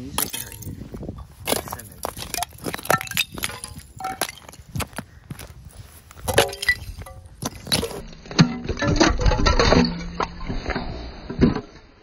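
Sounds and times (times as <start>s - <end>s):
ice shards clinking and cracking: 0.0s - 0.8s, 1.4s - 5.0s, 6.1s - 10.8s.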